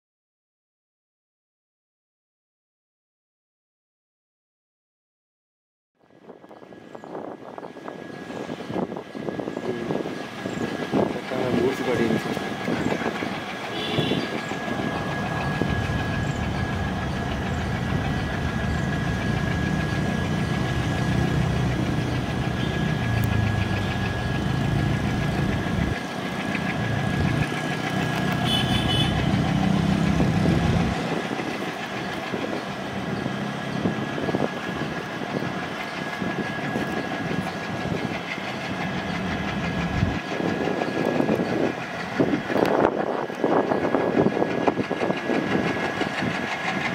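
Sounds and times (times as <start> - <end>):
locomotive engine rumble: 6.1 - 46.9
steady high-pitched tone: 6.8 - 43.0.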